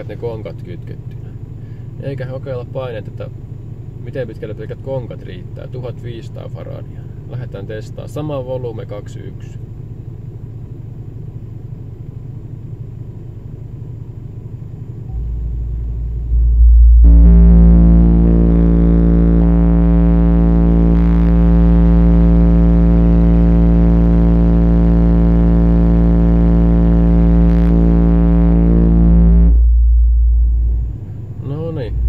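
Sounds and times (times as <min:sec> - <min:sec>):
subwoofer bass test tone: 0:15.0 - 0:32.0
low rumble: 0:15.1 - 0:32.0.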